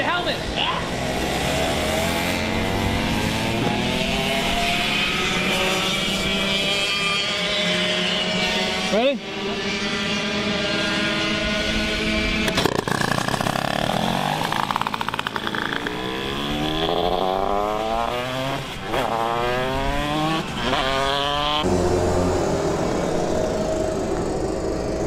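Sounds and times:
kart engine revving: 0:00.0 - 0:25.0
kart engine idling: 0:12.5 - 0:16.2, 0:21.6 - 0:25.0.

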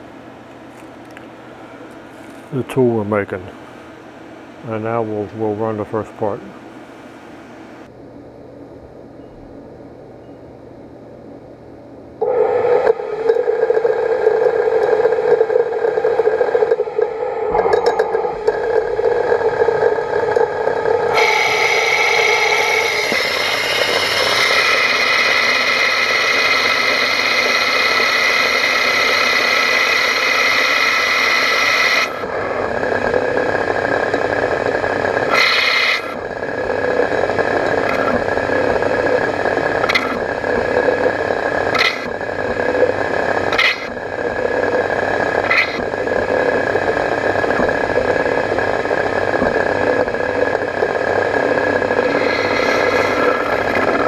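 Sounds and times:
lathe spindle running: 0:12.2 - 0:54.0
metal cutting sound: 0:20.4 - 0:32.3, 0:35.3 - 0:36.2, 0:37.4 - 0:38.8, 0:39.7 - 0:40.3, 0:41.7 - 0:42.2, 0:43.5 - 0:44.0, 0:45.4 - 0:45.9, 0:51.6 - 0:54.0.

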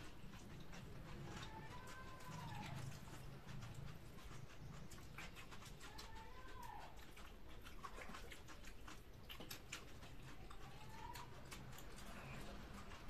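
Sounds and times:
chewing and eating sounds: 0:00.0 - 0:13.0.

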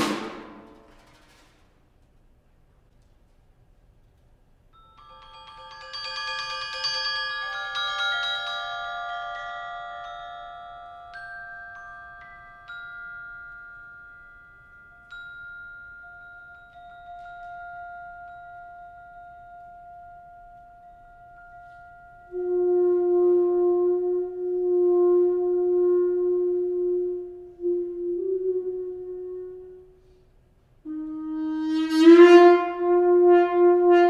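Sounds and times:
mallet percussion ringing: 0:04.8 - 0:22.3.

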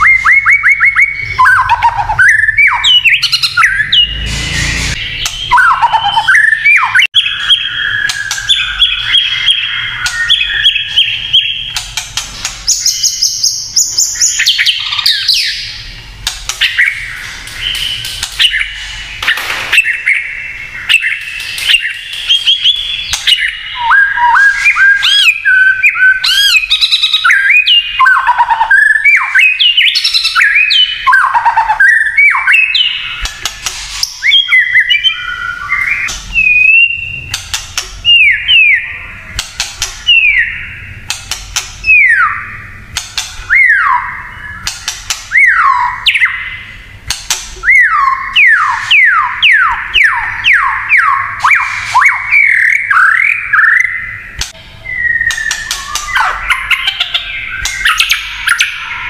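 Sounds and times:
songbird whistling: 0:00.0 - 0:11.8, 0:16.6 - 0:37.4, 0:38.0 - 0:39.2, 0:40.0 - 0:41.0, 0:41.8 - 0:42.7, 0:43.5 - 0:46.7, 0:47.6 - 0:59.0
bird crackling clicking notes: 0:11.7 - 0:12.7, 0:39.4 - 0:40.1, 0:44.6 - 0:45.4, 0:55.3 - 0:58.0.

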